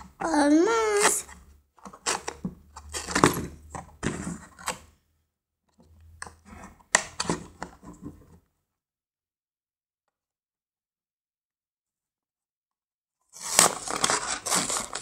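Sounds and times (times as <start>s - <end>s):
cardboard scratching and tearing: 13.4s - 15.0s.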